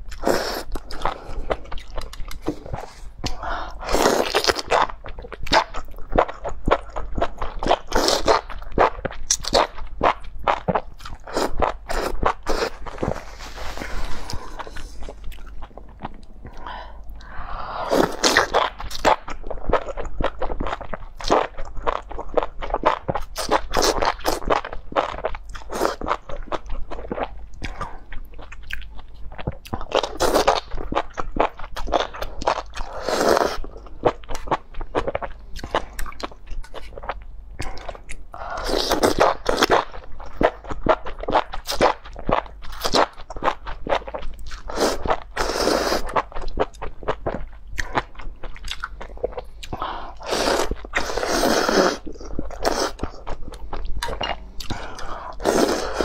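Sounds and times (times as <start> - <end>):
wet chewing: 0.0 - 17.4.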